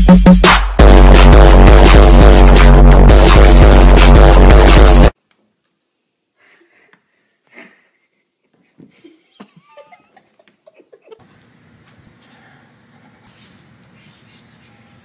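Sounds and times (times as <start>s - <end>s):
electronic dance music: 0.0s - 5.2s
faint room noise: 5.1s - 15.0s.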